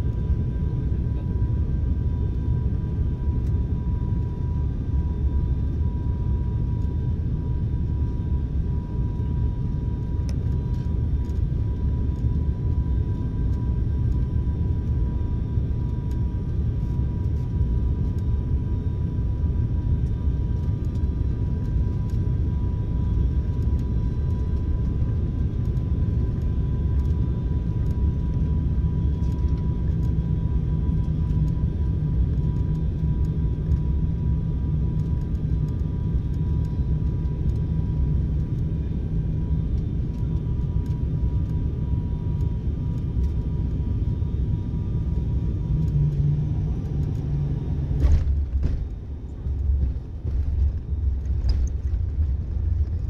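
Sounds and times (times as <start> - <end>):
engine rumble and rushing air: 0.0 - 53.0
faint steady whine: 0.0 - 53.0.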